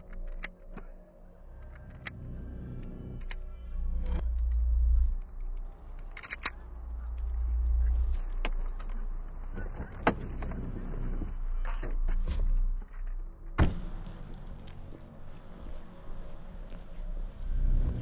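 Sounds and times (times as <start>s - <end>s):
low rumble: 0.0s - 18.0s
keys jangling: 4.3s - 6.6s.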